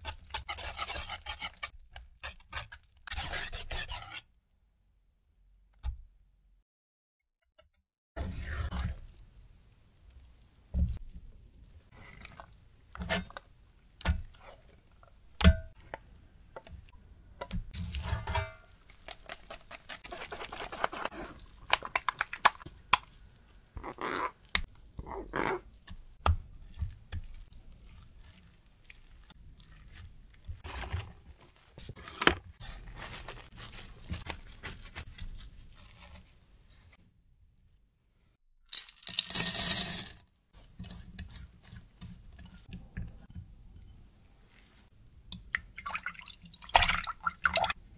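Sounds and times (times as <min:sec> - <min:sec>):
spatula scraping wet cream: 0:00.0 - 0:04.3, 0:18.9 - 0:21.5.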